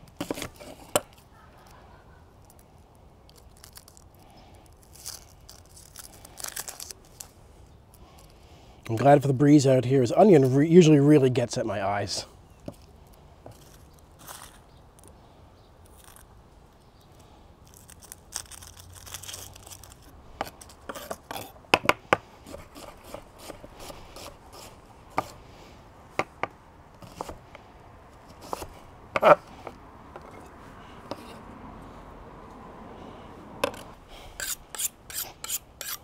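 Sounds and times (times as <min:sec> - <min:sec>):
knife scraping across board: 0:00.2 - 0:01.0, 0:20.4 - 0:21.6, 0:22.4 - 0:25.4, 0:28.2 - 0:31.4, 0:33.6 - 0:36.0
onion skin rustling: 0:02.4 - 0:08.4, 0:17.1 - 0:21.6.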